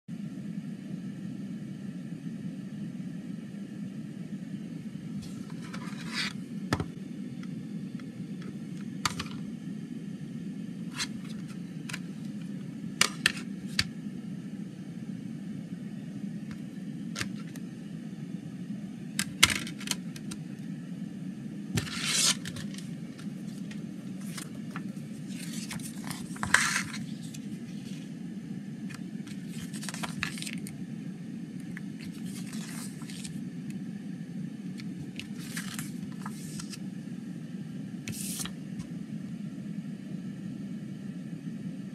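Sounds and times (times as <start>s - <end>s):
steady low hum: 0.1s - 41.9s
paper booklet rustling: 5.2s - 7.0s, 10.9s - 13.9s, 17.2s - 17.6s, 21.8s - 28.1s, 28.9s - 30.7s, 31.7s - 33.4s, 34.8s - 36.8s, 38.1s - 38.6s.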